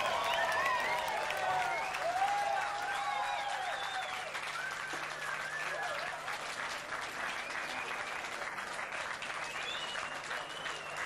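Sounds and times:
audience applauding and cheering: 0.0 - 11.0
whistles: 2.9 - 6.1, 7.2 - 8.2, 9.2 - 11.0.

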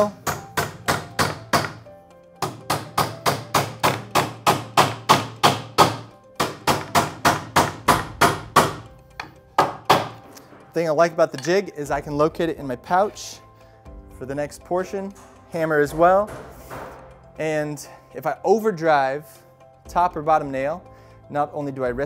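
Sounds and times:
hammer striking nails into wood: 0.0 - 10.2, 16.2 - 17.0.

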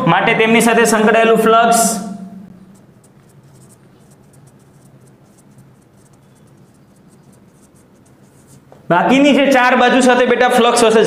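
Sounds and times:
marker scratching on whiteboard: 2.6 - 8.8.

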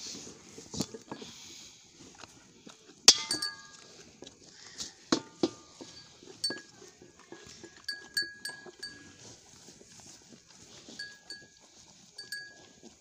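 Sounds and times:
calves feeding: 0.0 - 13.0
metal pan clanging: 3.1 - 3.8
light metallic clinks: 3.1 - 4.0, 5.2 - 9.2, 11.0 - 11.6, 12.2 - 12.6.

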